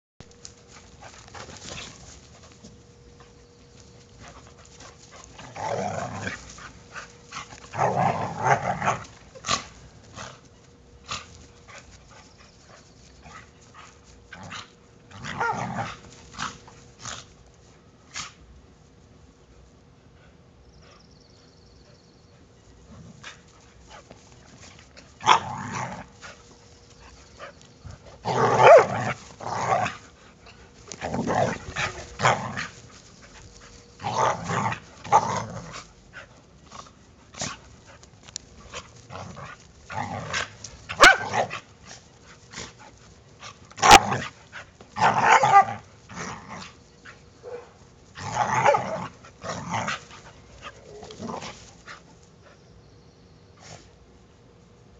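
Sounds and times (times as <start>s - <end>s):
dogs growling and snarling: 4.2s - 11.9s, 14.2s - 17.4s, 22.8s - 26.5s, 27.4s - 46.8s, 48.1s - 52.0s
dogs barking: 28.4s - 29.2s, 40.9s - 41.6s, 47.4s - 47.8s.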